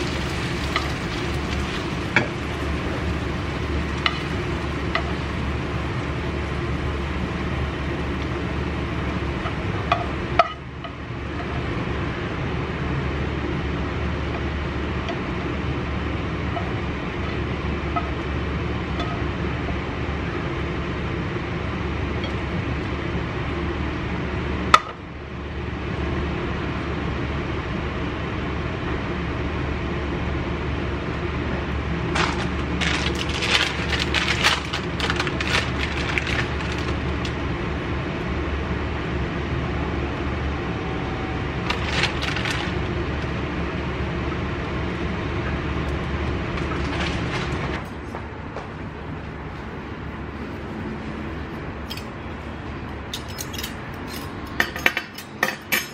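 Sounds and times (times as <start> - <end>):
room hum and hiss: 0.0 - 55.9
utensils clinking on ceramic plate: 53.1 - 55.9.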